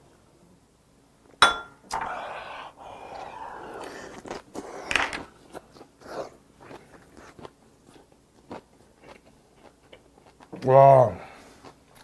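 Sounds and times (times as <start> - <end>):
wet chewing and crunching: 3.1 - 10.8, 11.4 - 12.0.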